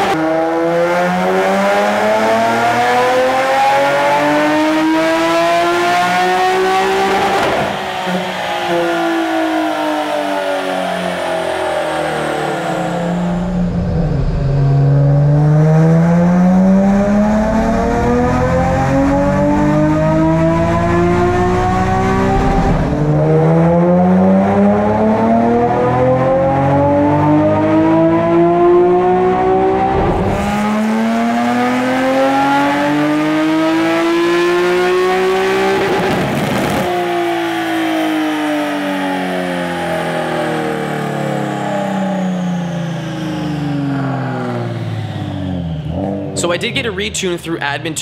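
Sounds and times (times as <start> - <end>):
car engine revving hard: 0.0 - 47.2.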